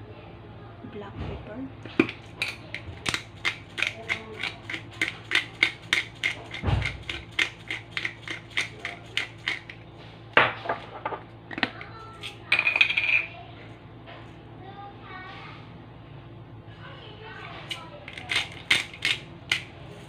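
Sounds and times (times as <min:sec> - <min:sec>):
pepper grinder clicking: 0:02.0 - 0:09.8, 0:17.7 - 0:19.7.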